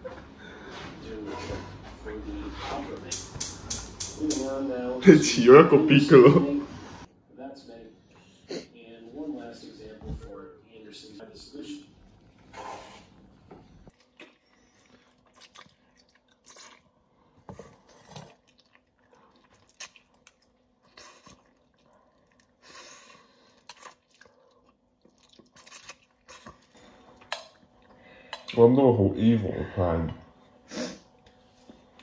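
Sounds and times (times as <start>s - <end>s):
chewing: 13.8s - 28.6s
noodles being slurped: 13.9s - 27.4s.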